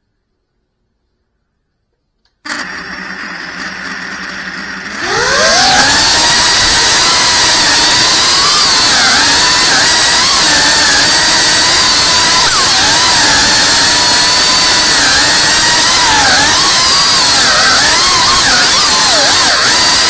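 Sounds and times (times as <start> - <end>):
drone motors and propellers whining: 4.2 - 20.0.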